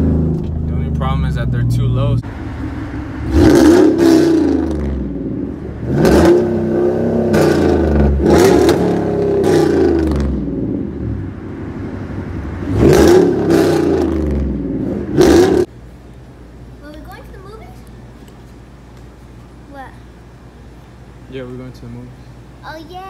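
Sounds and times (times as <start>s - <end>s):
truck exhaust accelerating: 0.0s - 15.8s.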